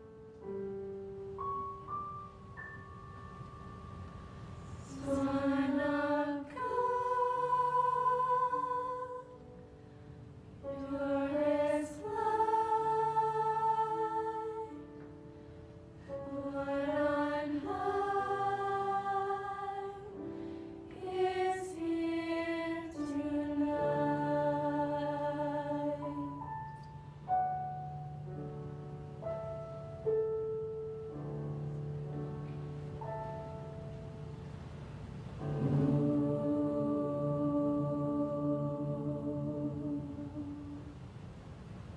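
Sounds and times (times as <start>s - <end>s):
mixed choir singing: 4.8s - 9.6s, 10.6s - 15.0s, 16.0s - 26.5s, 35.4s - 41.0s.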